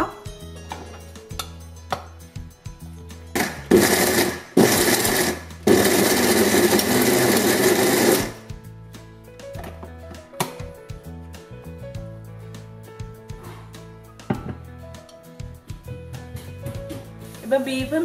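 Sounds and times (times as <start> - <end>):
mixer grinder grinding: 3.4 - 8.4.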